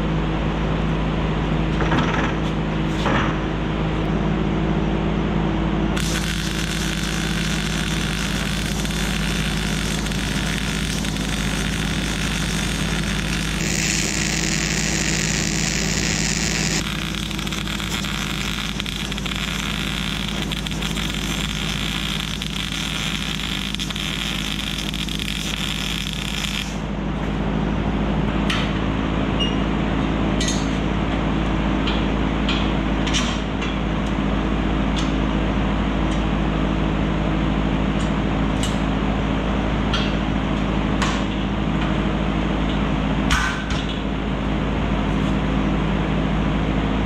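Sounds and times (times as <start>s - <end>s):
low hum: 3.4s - 28.4s
welder crackling: 5.9s - 26.9s.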